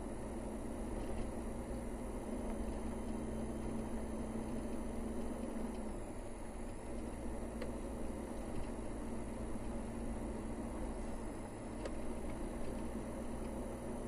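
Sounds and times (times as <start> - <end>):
car engine hum: 0.0 - 14.0
tyre noise on road: 0.0 - 14.0.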